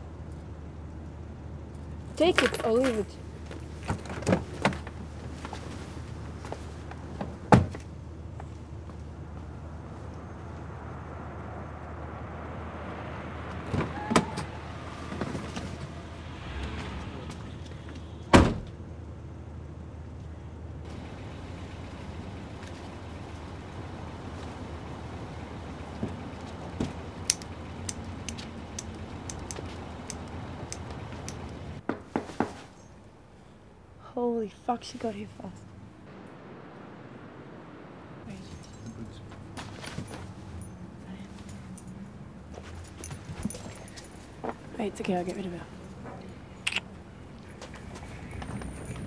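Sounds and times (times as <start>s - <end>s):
car engine hum: 0.0s - 31.9s, 35.4s - 49.0s
street traffic rumble: 0.0s - 49.0s.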